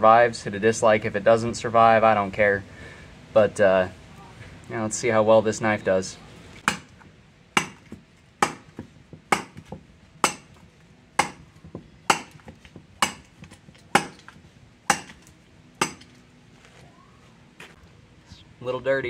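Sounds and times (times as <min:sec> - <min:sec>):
blade chopping into wood: 0:06.6 - 0:07.0, 0:07.6 - 0:10.6, 0:11.2 - 0:11.5, 0:12.1 - 0:16.1.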